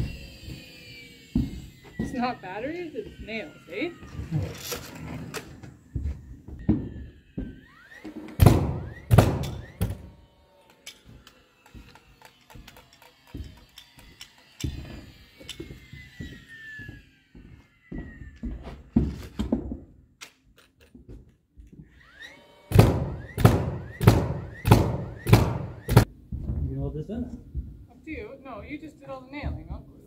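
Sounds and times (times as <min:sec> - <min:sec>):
faint nailer whine: 0:00.0 - 0:26.2
nail gun shots: 0:08.3 - 0:10.1, 0:22.7 - 0:26.1.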